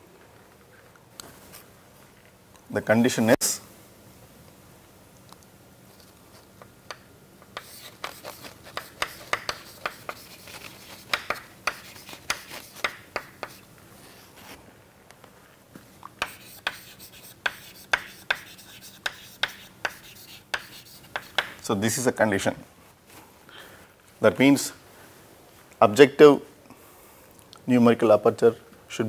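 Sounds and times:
chalk writing on chalkboard: 0:07.5 - 0:13.7, 0:16.2 - 0:21.6.

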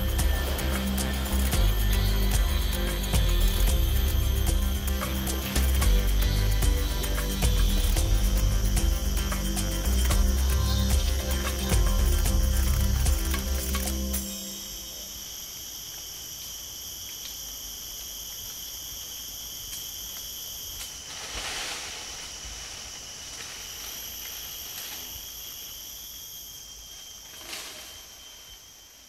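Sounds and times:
insects droning: 0:00.0 - 0:29.0.

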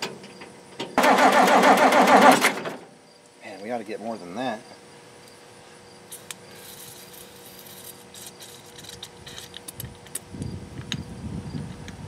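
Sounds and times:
diesel engine cranking: 0:00.0 - 0:02.8.

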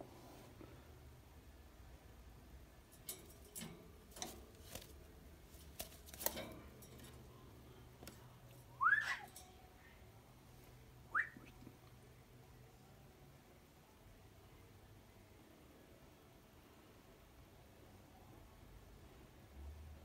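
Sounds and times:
short rising whistles: 0:08.8 - 0:09.2.

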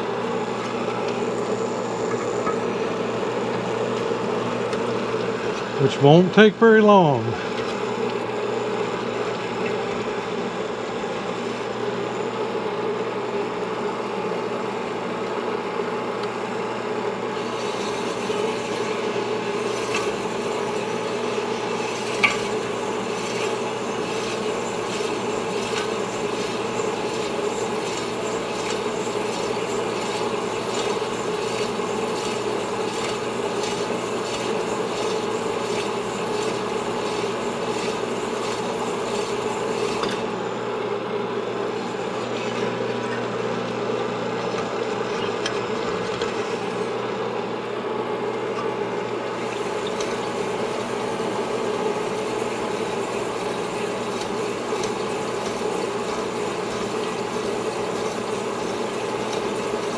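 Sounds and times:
honing machine humming: 0:00.0 - 0:09.3.

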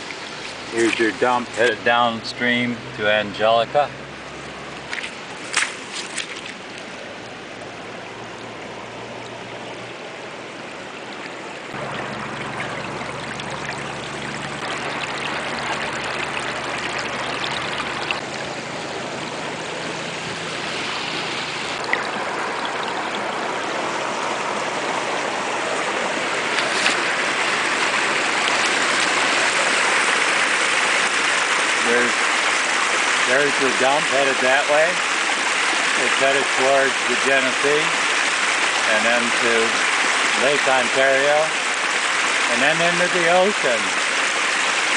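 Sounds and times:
water rushing over rocks: 0:00.0 - 0:44.9
water pouring from pipe: 0:11.7 - 0:18.7, 0:20.0 - 0:44.9.

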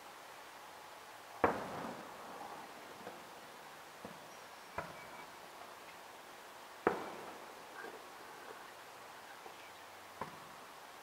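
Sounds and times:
distant fireworks bursting: 0:01.4 - 0:03.3, 0:06.8 - 0:08.7.

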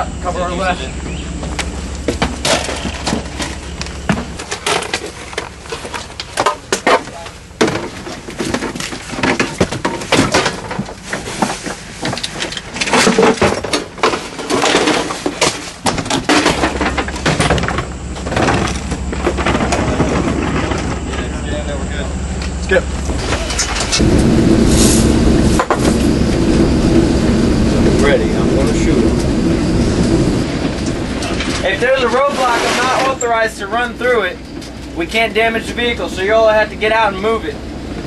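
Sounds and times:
truck engine idling: 0:00.0 - 0:13.0, 0:15.7 - 0:38.0
boxes knocking and clattering: 0:02.1 - 0:21.1.

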